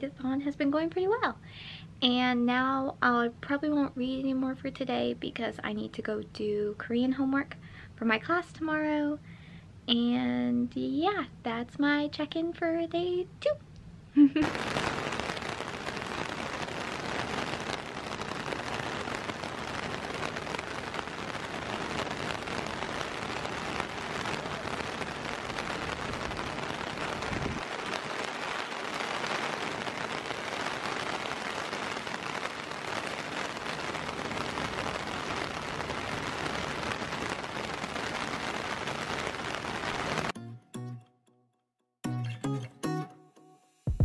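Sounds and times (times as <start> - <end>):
rain striking plastic umbrella: 14.4 - 40.4.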